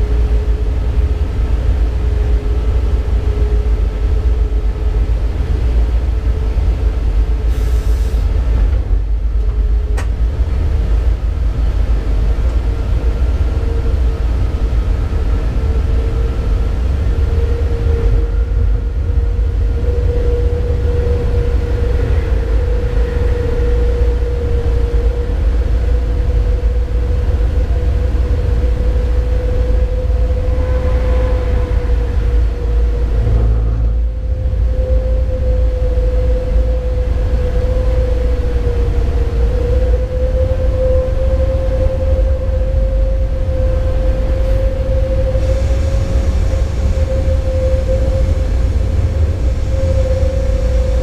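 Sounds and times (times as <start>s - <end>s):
low train rumble: 0.0s - 51.0s
rising electric whine: 29.6s - 36.9s.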